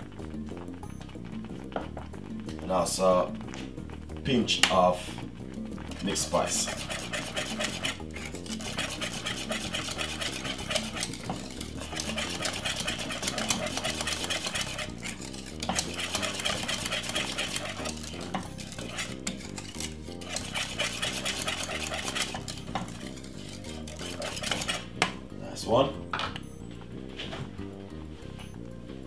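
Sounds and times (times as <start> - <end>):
whisk scraping metal pan: 5.9 - 25.2.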